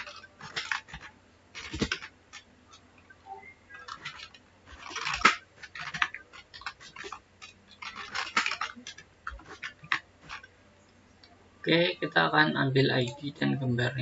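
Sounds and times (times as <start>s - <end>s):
keyboard typing: 0.0s - 10.5s.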